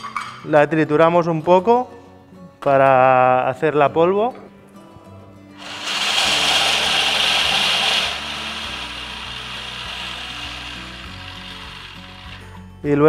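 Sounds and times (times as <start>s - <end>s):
food processor grinding: 5.6s - 12.6s.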